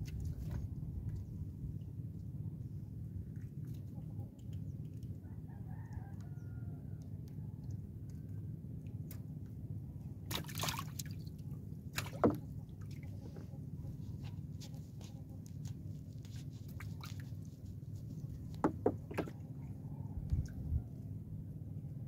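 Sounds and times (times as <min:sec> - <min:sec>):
steady low rumble: 0:00.0 - 0:05.3, 0:19.3 - 0:22.0
water dripping and splashing: 0:10.3 - 0:13.1.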